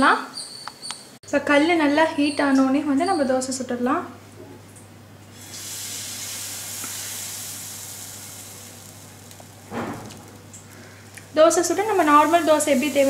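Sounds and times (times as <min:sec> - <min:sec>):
batter sizzling on hot pan: 0:05.3 - 0:13.0.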